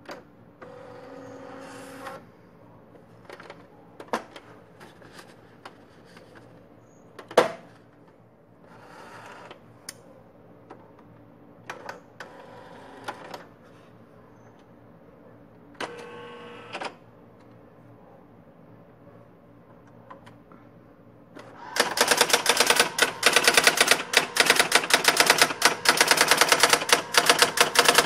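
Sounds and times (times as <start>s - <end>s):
typewriter motor whirring: 21.6s - 28.0s.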